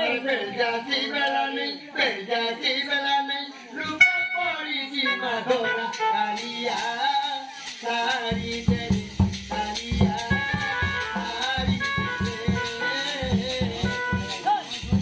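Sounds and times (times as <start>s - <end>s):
person singing: 0.0s - 15.0s
high clicking percussion: 5.5s - 15.0s
barrel drum beats: 5.9s - 15.0s.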